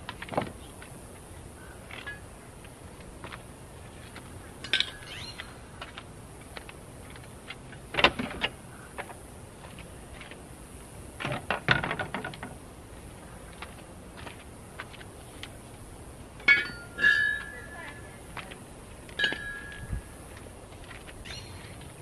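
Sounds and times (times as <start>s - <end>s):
belongings knocking and rattling: 16.4s - 18.0s.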